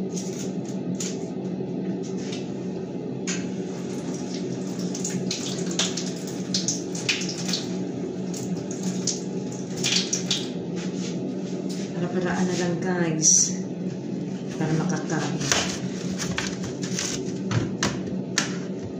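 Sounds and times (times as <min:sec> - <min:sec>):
tap water running and splashing: 0:03.3 - 0:10.6.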